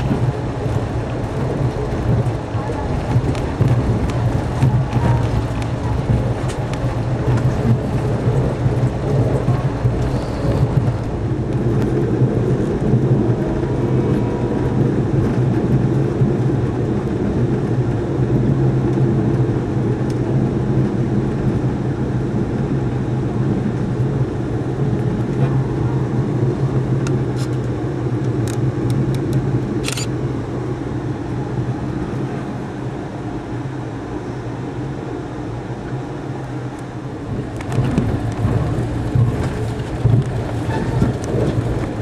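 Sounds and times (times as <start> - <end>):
train wheels rumbling on rails: 0.0 - 42.0.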